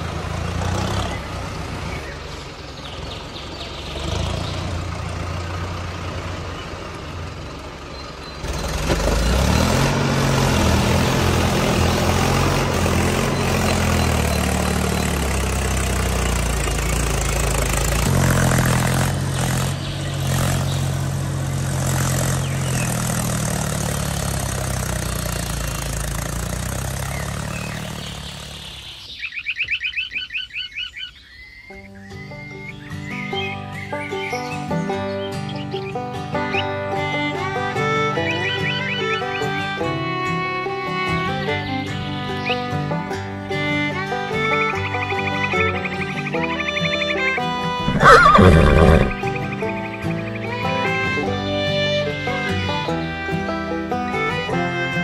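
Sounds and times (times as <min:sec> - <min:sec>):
toy tractor engine sound effect: 0:08.5 - 0:21.1, 0:46.4 - 0:49.3
horse whinny: 0:47.8 - 0:49.2.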